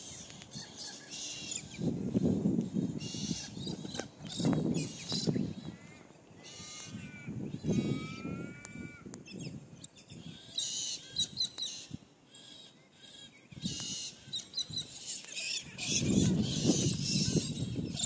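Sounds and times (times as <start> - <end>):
raven cawing: 5.6 - 9.1.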